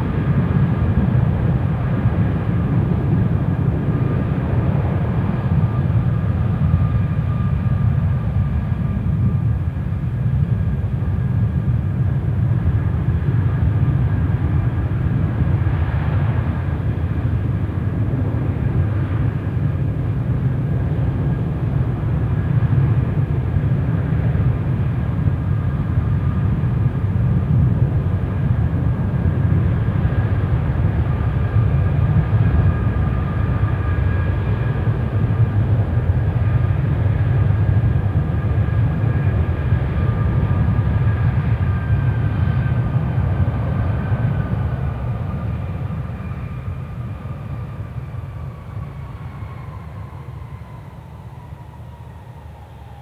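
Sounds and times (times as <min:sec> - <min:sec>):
faint engine whine: 0:00.0 - 0:53.0
jet engines rumbling: 0:00.0 - 0:53.0.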